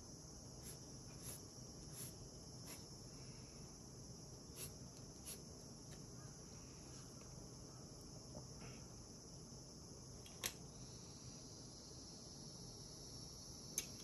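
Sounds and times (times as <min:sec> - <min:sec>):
steady high hiss: 0:00.0 - 0:14.0
pencil scratching on paper: 0:00.6 - 0:02.9, 0:04.5 - 0:05.4.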